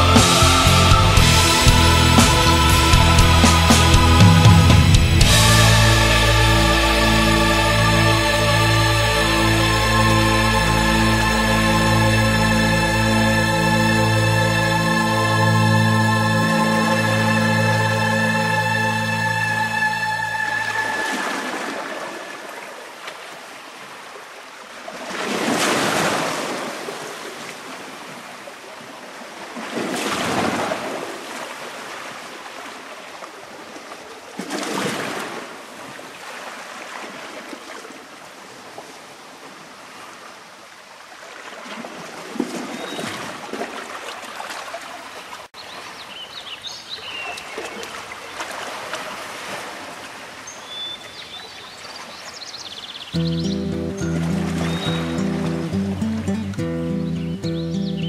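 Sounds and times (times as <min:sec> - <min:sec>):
sea waves breaking: 0:00.0 - 0:46.2, 0:47.0 - 0:52.5, 0:53.1 - 0:57.0.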